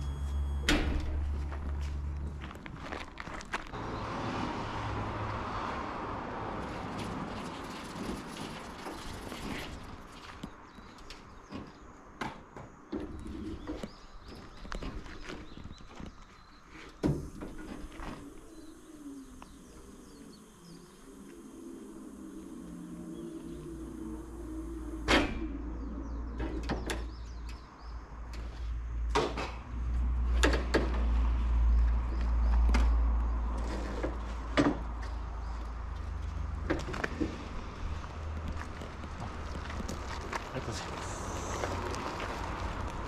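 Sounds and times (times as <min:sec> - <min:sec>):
liftgate motor humming: 0:17.2 - 0:26.8
low rumble: 0:18.2 - 0:27.3.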